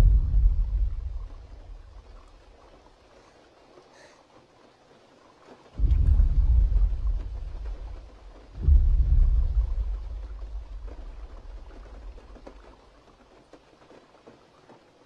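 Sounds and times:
deep booming thud: 0.0s - 2.1s, 5.8s - 12.6s
rain patter: 0.0s - 15.0s.

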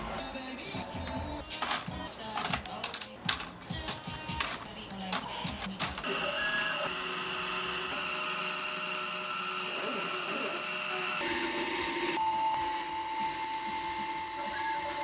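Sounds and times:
plastic parts clicking on tray: 1.4s - 6.1s
mill spindle whine and hiss: 6.0s - 15.0s.

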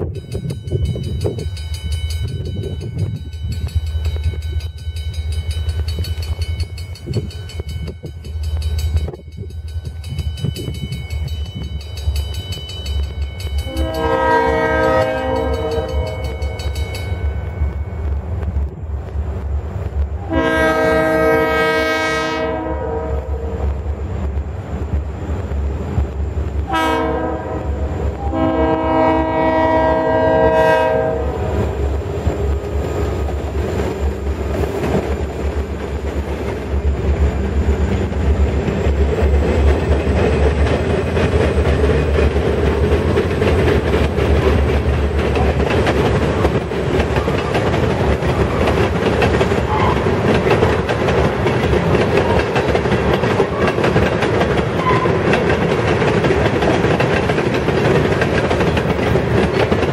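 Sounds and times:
locomotive air horn blasts: 13.6s - 16.4s, 20.2s - 23.6s, 26.7s - 31.6s, 49.7s - 50.1s.

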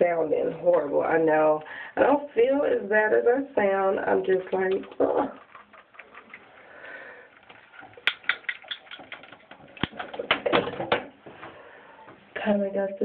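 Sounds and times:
faint rustling: 4.2s - 12.4s
light clicks and taps: 7.3s - 11.0s.

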